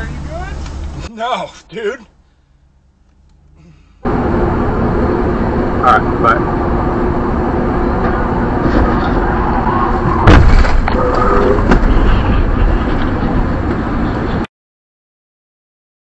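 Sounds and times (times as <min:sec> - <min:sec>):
road and engine noise in cab: 0:00.0 - 0:14.5
loud collision bang: 0:10.1 - 0:11.0.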